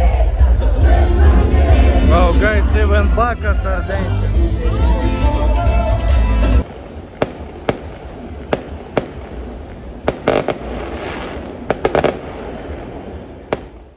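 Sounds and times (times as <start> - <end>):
fireworks crackling: 6.4 - 13.9
distant fireworks bangs: 6.6 - 13.9.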